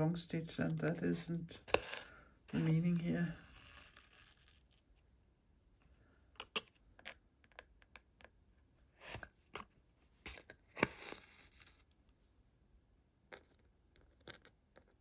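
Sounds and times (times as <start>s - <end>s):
needle and thread through card: 0.6s - 4.9s.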